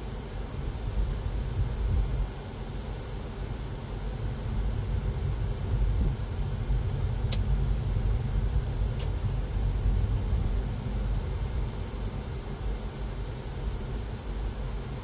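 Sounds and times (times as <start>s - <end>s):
car engine and tyre rumble: 3.1s - 15.0s.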